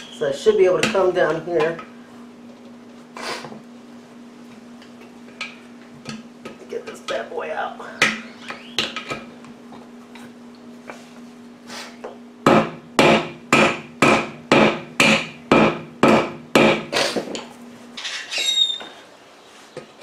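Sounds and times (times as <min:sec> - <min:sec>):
hammer striking wheel: 0:12.5 - 0:16.9.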